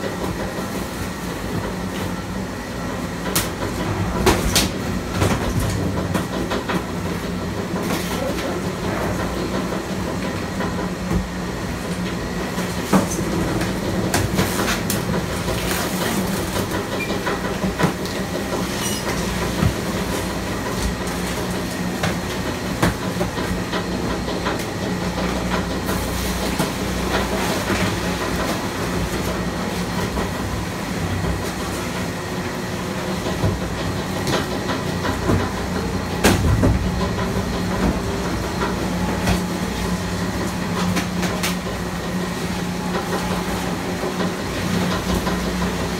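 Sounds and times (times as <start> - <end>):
auger compactor hum and rumble: 0.0 - 45.9.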